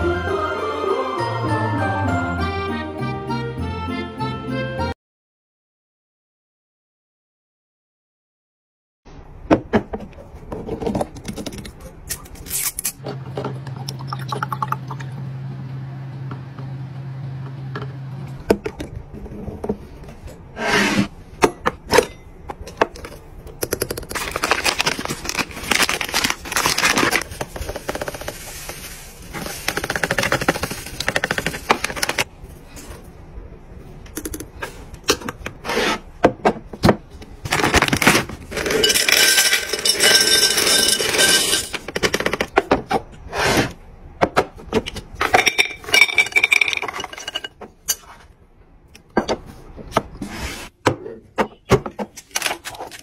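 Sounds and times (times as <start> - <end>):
candies clinking into glass jar: 38.5 - 41.9, 45.3 - 47.5.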